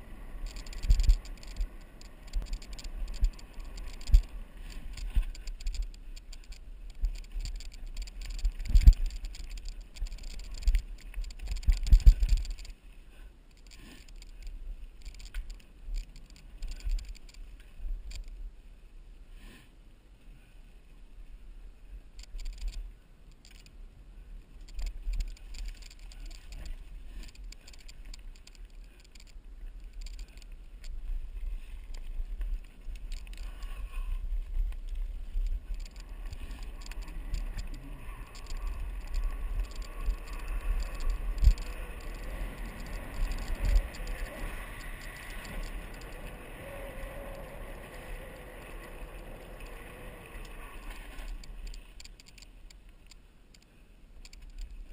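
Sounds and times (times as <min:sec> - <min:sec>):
bike rattling over bumps: 0:00.0 - 0:12.8, 0:32.0 - 0:52.4
wind rumbling on microphone: 0:00.0 - 0:19.2, 0:20.8 - 0:53.1.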